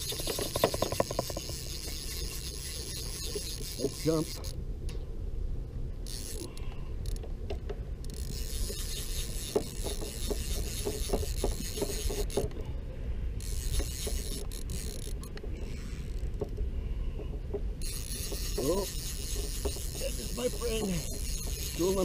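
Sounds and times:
fishing reel clicker ratcheting: 0.0 - 4.6, 6.1 - 7.3, 8.0 - 12.5, 13.4 - 15.4, 17.8 - 22.0.

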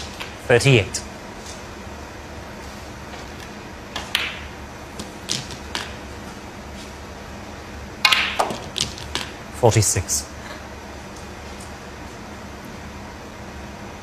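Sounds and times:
snooker balls clicking: 3.2 - 6.1, 8.0 - 9.4.

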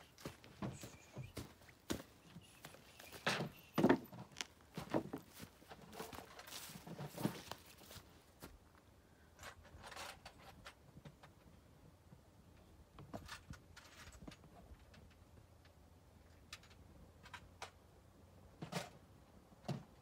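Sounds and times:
rustling leaves: 0.0 - 8.3
footsteps on dry grass: 0.0 - 8.6.

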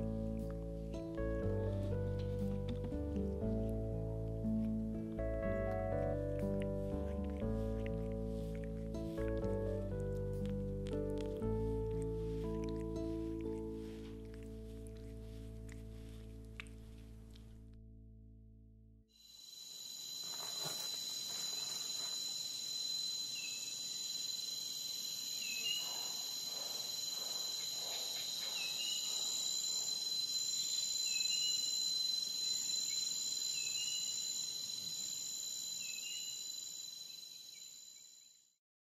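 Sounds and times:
insects chirring: 19.2 - 38.5.

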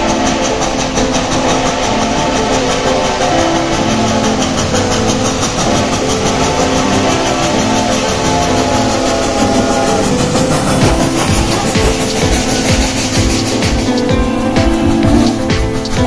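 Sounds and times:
steady tones: 0.0 - 16.0
steam locomotive chuffing: 0.0 - 16.0.

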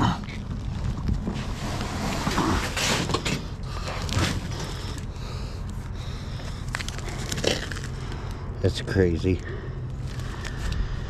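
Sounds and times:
steady low rumble: 0.0 - 11.0
cardboard rustling and scraping: 0.5 - 5.0.

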